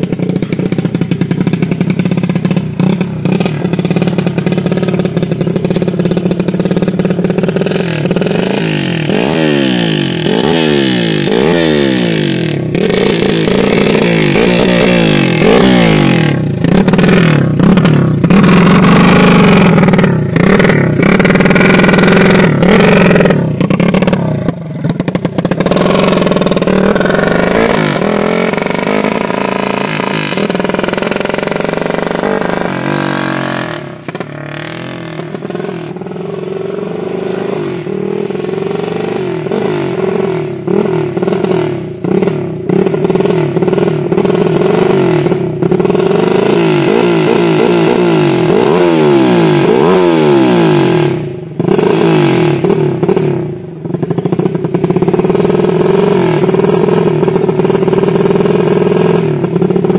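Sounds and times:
raspy motorcycle engine revving: 0:00.0 - 0:59.9.

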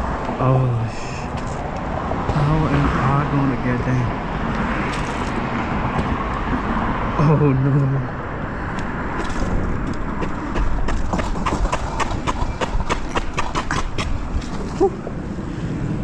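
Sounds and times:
scooter rolling on rough concrete: 0:04.5 - 0:06.9, 0:08.7 - 0:16.0
scooter rattling clicks and knocks: 0:08.7 - 0:15.0.

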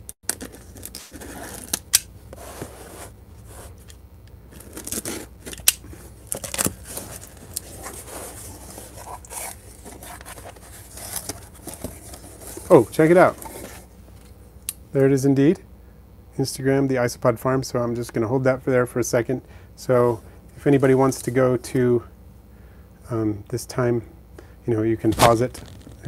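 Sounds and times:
cardboard flaps pulled open: 0:25.1 - 0:26.0.

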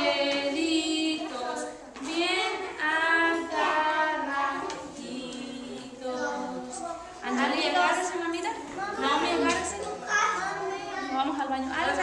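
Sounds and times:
woman singing: 0:00.0 - 0:08.4
children singing: 0:00.0 - 0:11.2.

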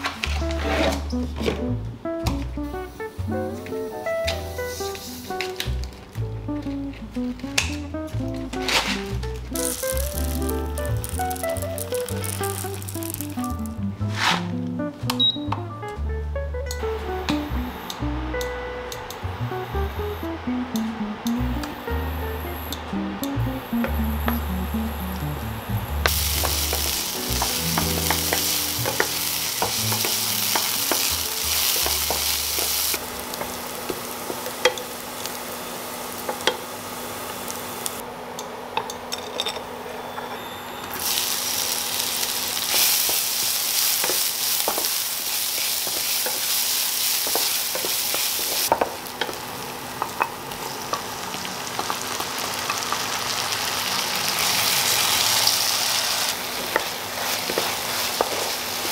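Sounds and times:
wooden spatula scraping a pan: 0:00.0 - 0:01.1, 0:14.0 - 0:14.5
soft background music: 0:00.0 - 0:33.0
food sizzling in a pan: 0:08.6 - 0:14.3, 0:23.7 - 0:38.0, 0:40.9 - 0:58.9.

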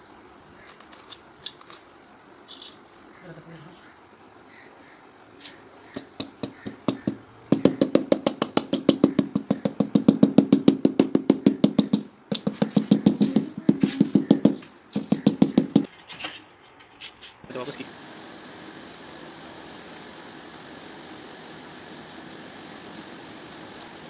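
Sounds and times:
rubber mallet tapping tile: 0:06.0 - 0:15.9.

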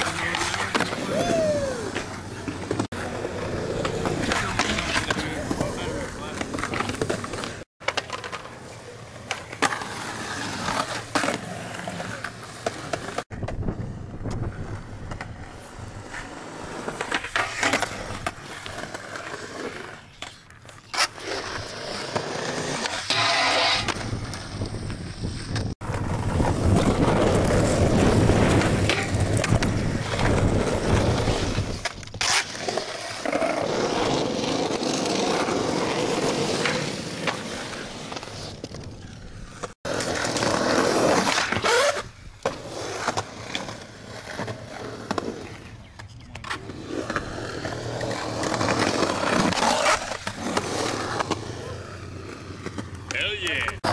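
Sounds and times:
skateboard wheels rolling on concrete: 0:00.0 - 0:53.9
skateboard grinding on metal: 0:20.9 - 0:24.6, 0:46.4 - 0:53.1.

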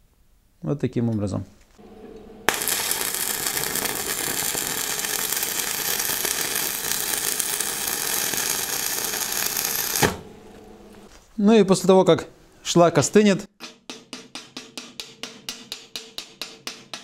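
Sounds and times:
welding arc crackling sizzle: 0:01.8 - 0:11.1.

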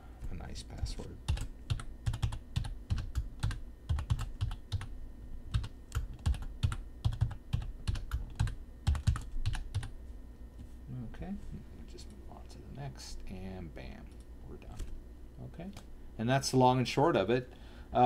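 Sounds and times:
typing on computer keyboard: 0:01.3 - 0:04.9, 0:05.5 - 0:09.9.

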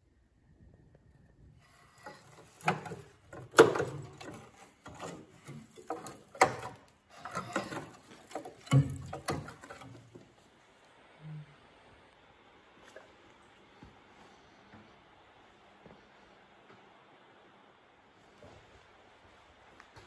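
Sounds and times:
rusted metal clattering and scraping: 0:01.9 - 0:10.2.

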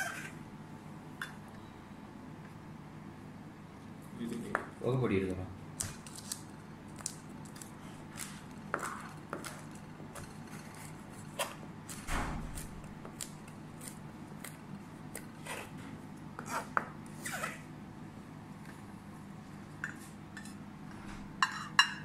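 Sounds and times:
faint steady hum: 0:00.0 - 0:22.0.

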